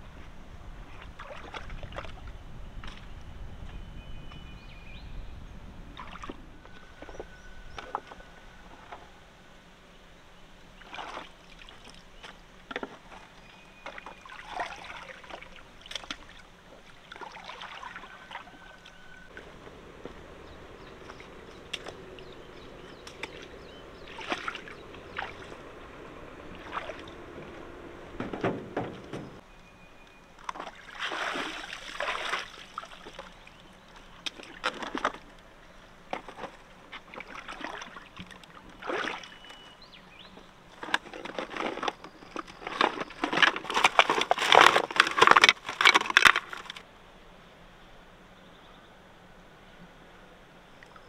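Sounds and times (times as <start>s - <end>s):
wading splashes in shallow water: 0.7s - 3.2s, 5.9s - 8.9s, 10.6s - 29.4s, 30.3s - 46.8s.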